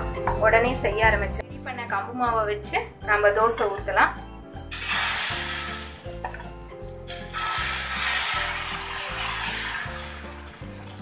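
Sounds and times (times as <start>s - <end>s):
batter sizzling on hot griddle: 4.7s - 11.0s.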